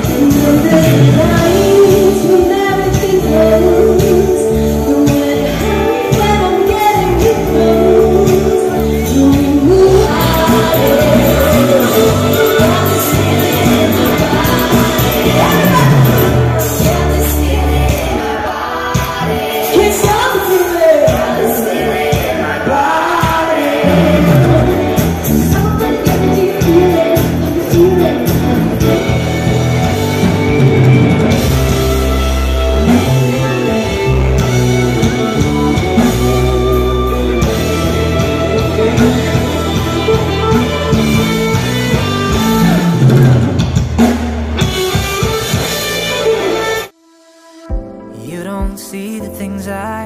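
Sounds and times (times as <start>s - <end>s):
person singing into microphone: 0.0s - 29.2s, 47.7s - 50.0s
electric guitars: 0.0s - 48.8s
drum kit: 0.0s - 49.7s.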